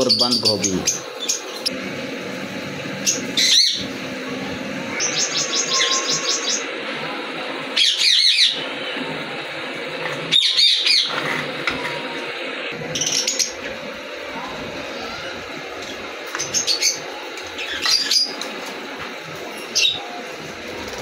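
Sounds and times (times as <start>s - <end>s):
small parrots chirping: 3.0s - 3.8s, 4.9s - 6.7s.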